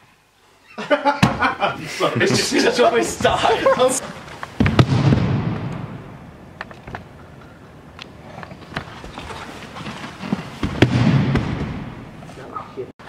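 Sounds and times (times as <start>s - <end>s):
loud knock: 1.2s - 1.6s, 10.6s - 12.0s
low thud: 4.6s - 6.3s, 10.6s - 12.2s
footsteps on wooden floor: 8.6s - 12.4s.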